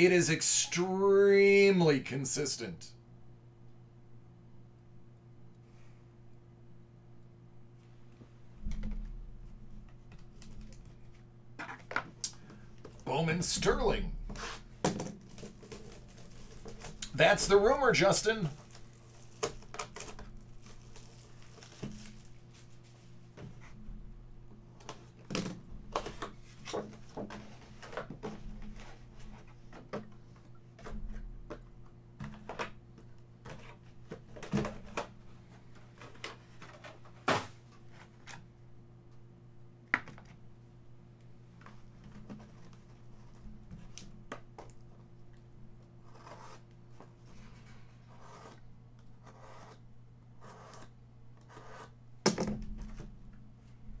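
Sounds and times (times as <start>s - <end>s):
low electrical hum: 0.0s - 54.0s
plastic wrap crinkling: 15.2s - 17.2s, 18.4s - 22.8s.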